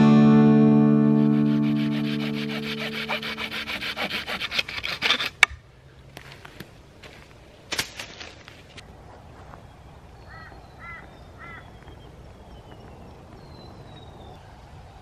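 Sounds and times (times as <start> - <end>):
bird calling: 10.2 - 14.3.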